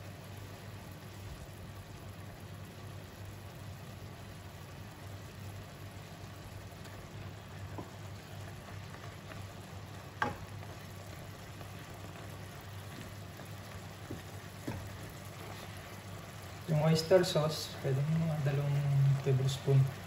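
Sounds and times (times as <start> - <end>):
beef sizzling in a wok: 0.0 - 20.0
wooden spatula stirring: 6.7 - 19.2
spatula knocking on pan: 10.2 - 10.5.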